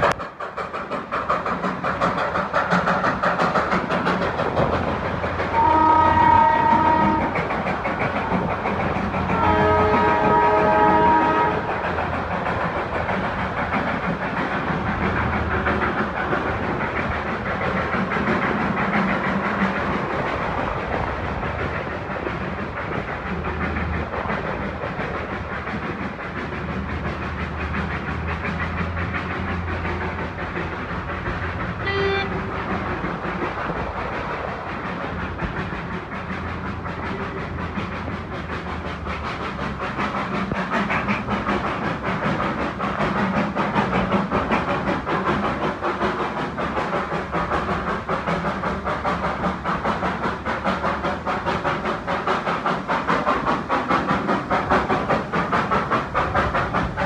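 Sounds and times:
rumble and rattle of train wheels: 0:00.0 - 0:57.0
train whistle toot: 0:05.6 - 0:07.3, 0:09.4 - 0:11.7, 0:31.8 - 0:32.5.

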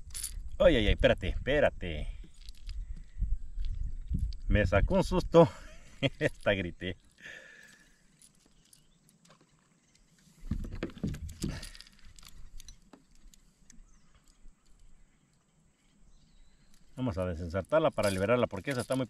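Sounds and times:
handling clicks and rustles: 0:02.2 - 0:04.5, 0:05.7 - 0:19.0.

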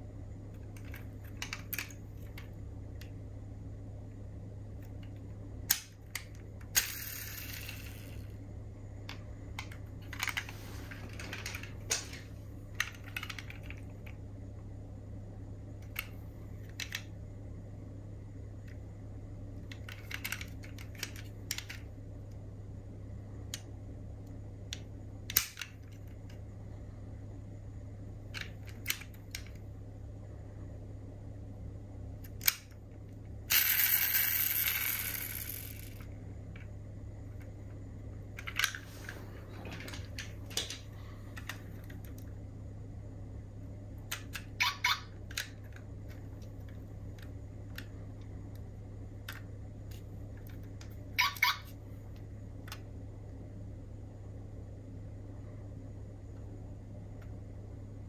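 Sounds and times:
low hum: 0:00.0 - 0:58.0
model cars clicking and tapping: 0:19.6 - 0:21.9.

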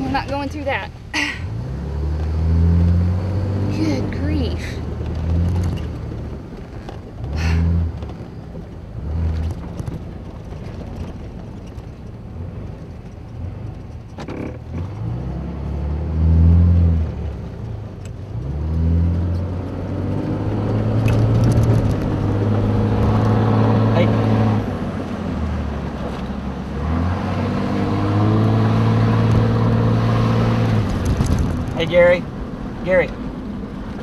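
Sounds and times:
vehicle engine revving: 0:00.0 - 0:34.0.

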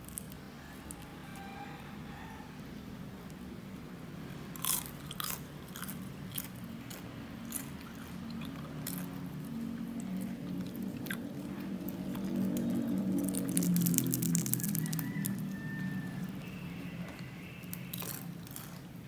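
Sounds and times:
crunchy bites and chewing: 0:04.5 - 0:19.0.

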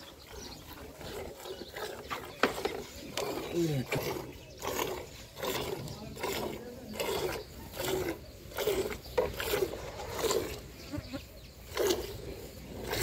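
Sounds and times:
milk squirting into bucket: 0:01.0 - 0:10.6.

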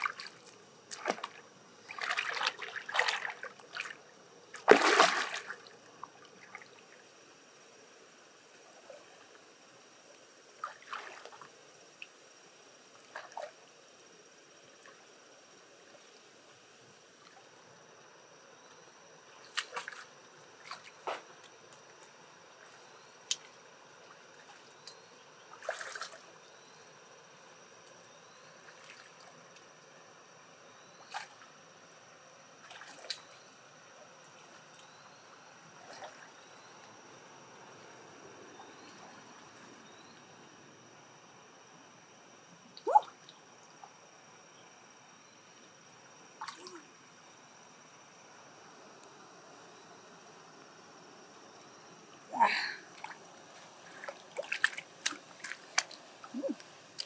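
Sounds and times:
wet squelching: 0:53.9 - 0:57.0.

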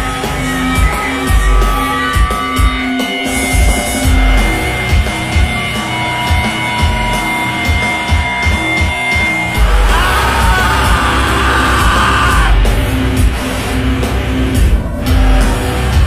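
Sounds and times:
heavy distorted electronic music: 0:00.0 - 0:16.0
person shouting vocal: 0:09.6 - 0:12.6.

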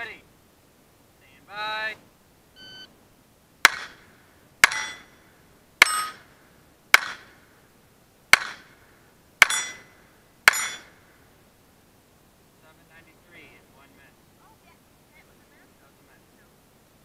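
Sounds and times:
pistol shots: 0:03.6 - 0:05.0, 0:06.9 - 0:07.4, 0:08.3 - 0:08.7
steel target plates ringing: 0:04.6 - 0:05.2, 0:05.8 - 0:06.3, 0:09.4 - 0:11.0.

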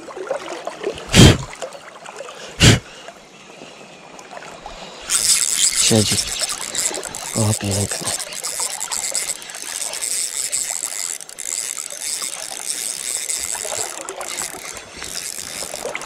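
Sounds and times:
fishing reel whirring and clicking: 0:05.0 - 0:16.0.

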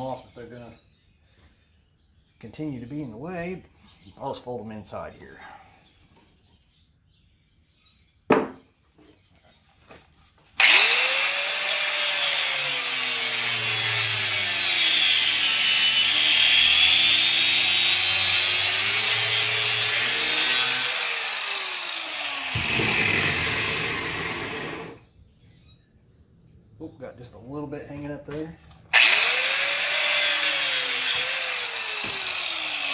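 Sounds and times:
sharp knock: 0:08.3 - 0:08.6
angle grinder cutting metal: 0:10.6 - 0:25.0, 0:28.9 - 0:32.9.

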